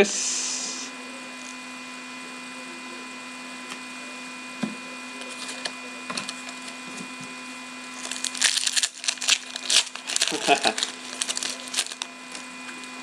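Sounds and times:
background hum: 8.0s - 12.4s
cards and foil packs tapping: 8.0s - 12.4s.

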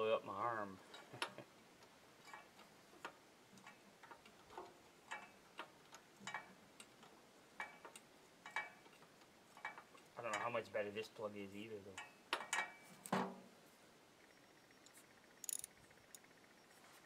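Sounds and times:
metal clicks and taps: 3.0s - 9.0s, 14.8s - 16.3s.

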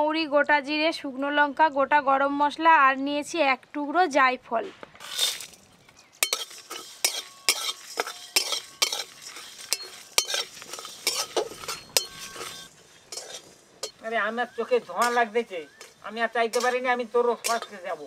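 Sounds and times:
metal spatula scraping a pan: 5.0s - 18.0s.

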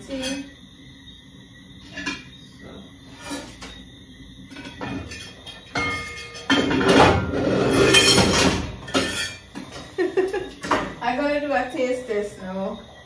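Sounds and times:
metal pots and lids clattering: 1.8s - 2.3s, 4.5s - 11.0s.

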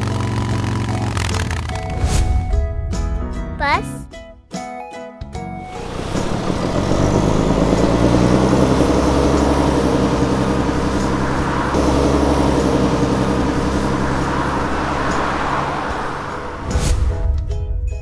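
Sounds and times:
vehicle engine running: 0.0s - 2.0s, 5.6s - 16.8s.

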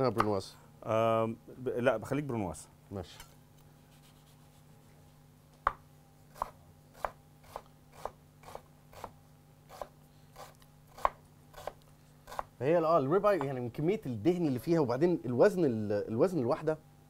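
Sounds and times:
knife chopping on wooden board: 5.6s - 12.5s.

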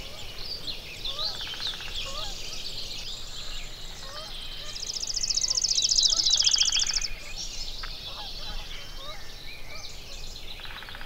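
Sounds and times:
songbirds chirping and whistling: 0.0s - 11.0s.

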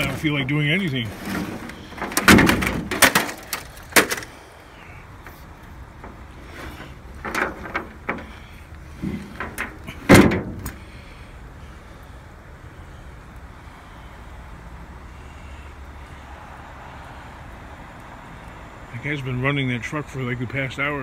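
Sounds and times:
objects knocking and clattering: 1.2s - 4.3s, 6.0s - 8.4s, 9.0s - 10.8s.

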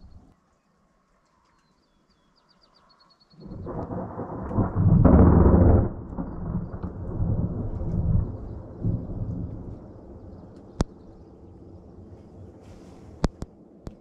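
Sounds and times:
thunder rumbling: 3.4s - 14.0s.

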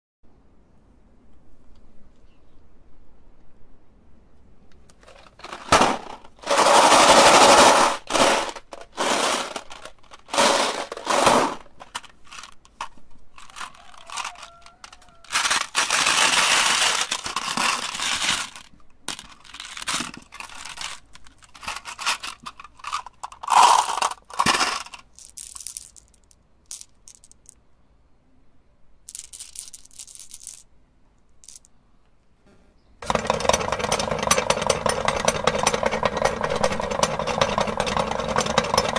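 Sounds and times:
glass marbles rattling in plastic boxes: 5.0s - 27.6s, 29.1s - 30.7s, 31.4s - 31.7s, 33.0s - 38.9s.

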